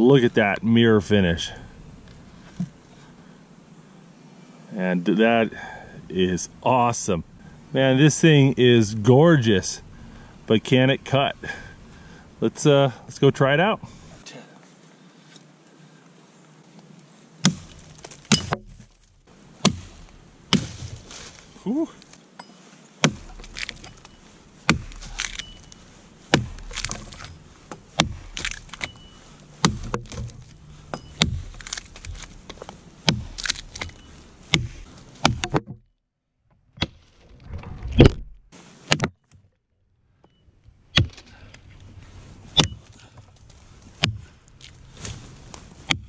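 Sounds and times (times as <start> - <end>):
axe chopping log: 17.4 - 18.9, 19.6 - 21.3, 23.0 - 35.8, 38.9 - 39.1, 40.9 - 41.3, 42.6 - 42.8, 44.0 - 45.2.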